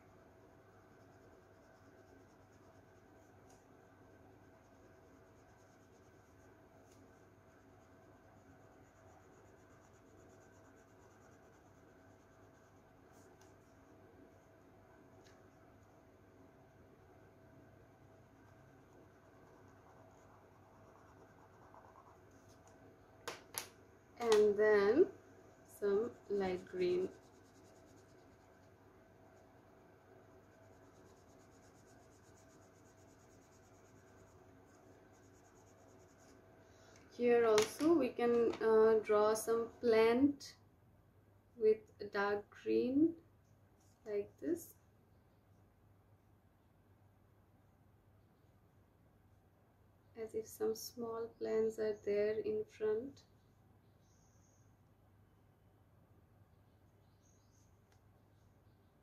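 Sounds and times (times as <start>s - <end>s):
colouring scratching on paper: 0.0s - 16.1s, 18.0s - 22.8s, 24.2s - 36.5s
steady low hum: 0.0s - 59.0s.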